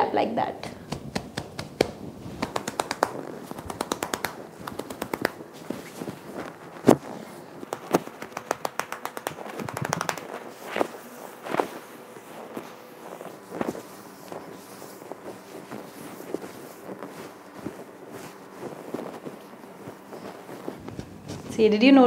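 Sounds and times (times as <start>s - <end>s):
loud hand clap: 0.7s - 5.4s, 7.7s - 10.4s
gloved hands scrunching stiff hair: 0.7s - 21.7s.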